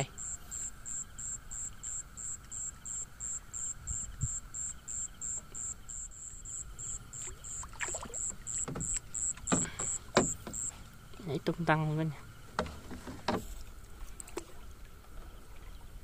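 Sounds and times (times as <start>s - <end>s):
crickets chirping: 0.0s - 16.0s
faint insect drone: 0.0s - 16.0s
soft knocks and rustles: 12.5s - 14.5s.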